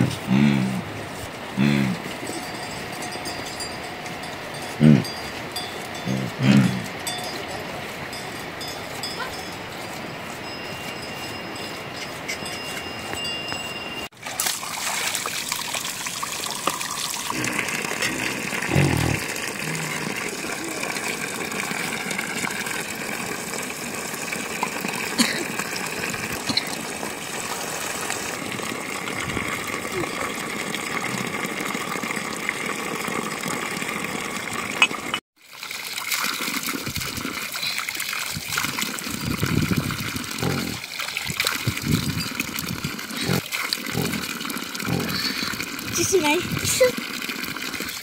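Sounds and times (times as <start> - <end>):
running water: 0.0 - 48.0.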